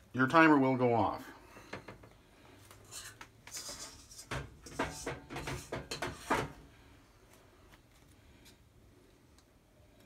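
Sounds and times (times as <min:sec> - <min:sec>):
kitchen knocks and scrapes: 0:02.8 - 0:06.7.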